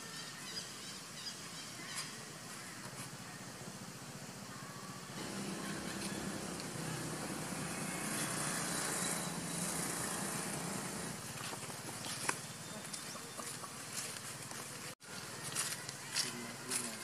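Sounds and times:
motor engine running: 5.1s - 12.6s.

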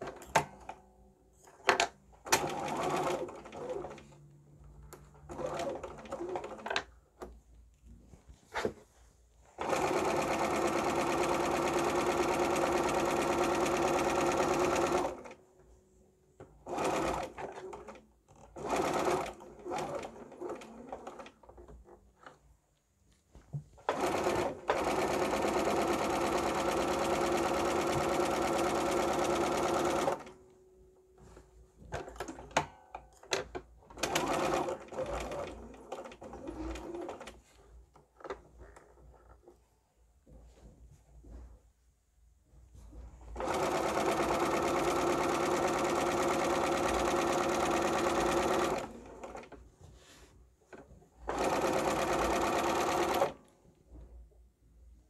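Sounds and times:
electric sewing machine stitching: 2.3s - 4.1s, 5.2s - 6.8s, 9.6s - 15.4s, 16.7s - 21.4s, 23.8s - 30.3s, 34.0s - 37.4s, 43.3s - 49.6s, 51.2s - 53.5s.

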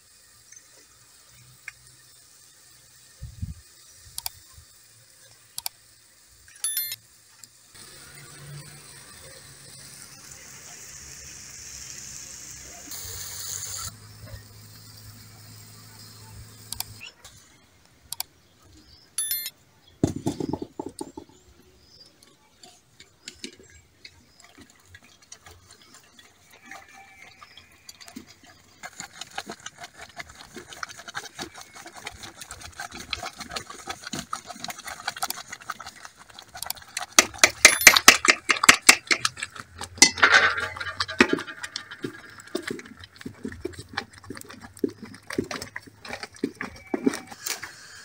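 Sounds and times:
wooden stick stirring porridge in pot: 22.8s - 47.8s
clinks and knocks: 37.2s - 44.6s.

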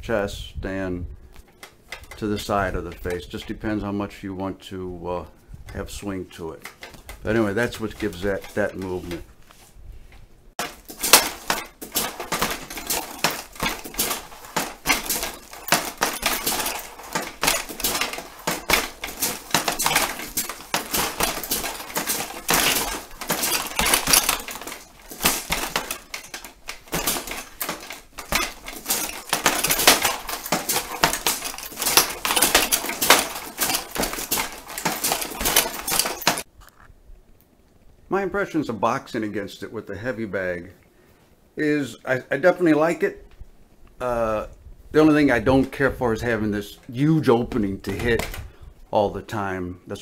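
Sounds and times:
gloves hitting heavy bag: 10.6s - 36.4s
padded machine arms striking gloves: 10.6s - 36.5s.

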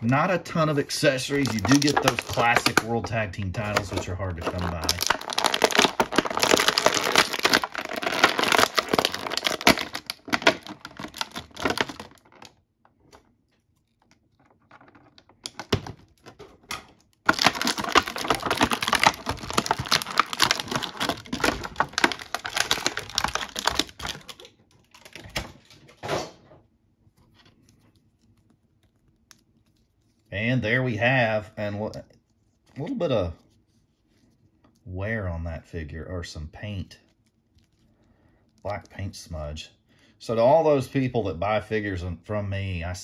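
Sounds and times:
plastic bag crinkling: 0.0s - 25.9s.

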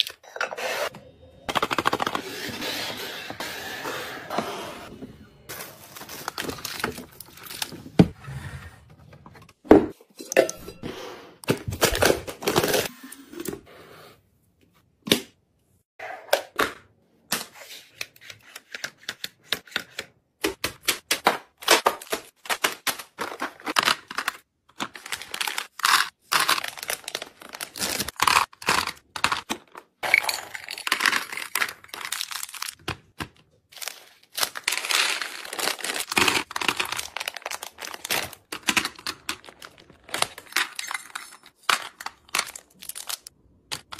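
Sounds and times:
snack packaging crinkling and tearing: 22.0s - 33.1s, 33.7s - 43.9s.

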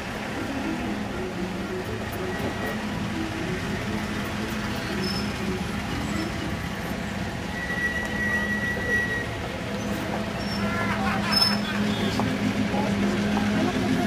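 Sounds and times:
cars rolling past at low revs: 0.0s - 14.0s
thin high squeal: 7.4s - 11.8s.

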